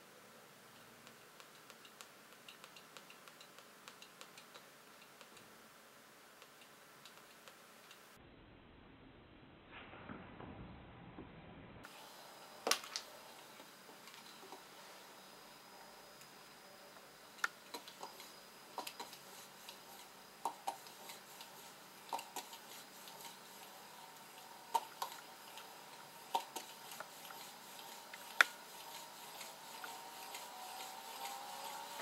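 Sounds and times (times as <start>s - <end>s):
rotor whirring: 17.3s - 32.0s.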